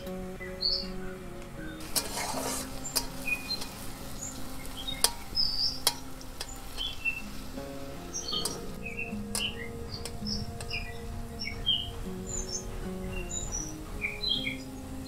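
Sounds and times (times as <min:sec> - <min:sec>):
bird chirps: 0:00.0 - 0:15.0
soft background music: 0:00.0 - 0:15.0
potatoes sizzling in oil: 0:00.4 - 0:15.0
metal spatula scraping wok: 0:01.7 - 0:10.8.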